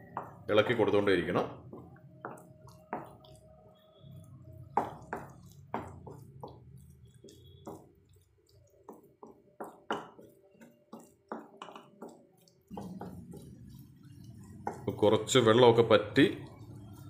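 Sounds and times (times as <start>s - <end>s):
spatula scraping and knocking pan: 4.6s - 15.5s.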